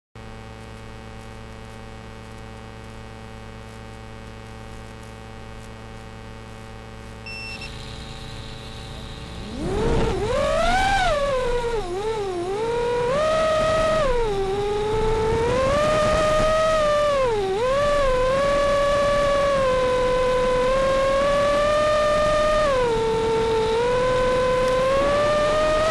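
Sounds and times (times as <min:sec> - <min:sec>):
faint steady hum: 0:00.2 - 0:25.9
short high beep: 0:07.2 - 0:09.0
drone motors whining: 0:07.3 - 0:25.9.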